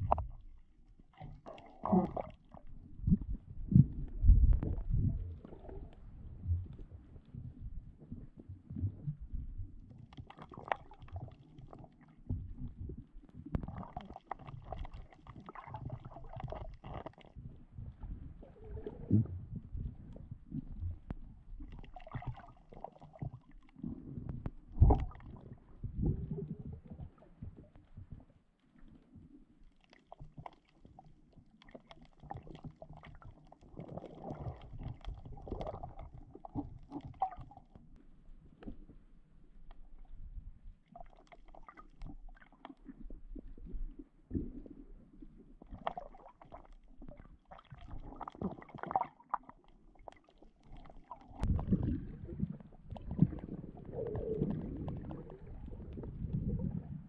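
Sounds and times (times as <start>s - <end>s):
muffled underwater rumble: 0.0s - 57.0s
underwater clicks and gurgles: 0.0s - 57.0s.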